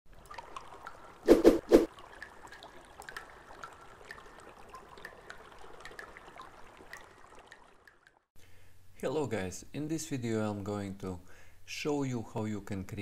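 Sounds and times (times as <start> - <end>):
trickling: 0.1 - 8.3.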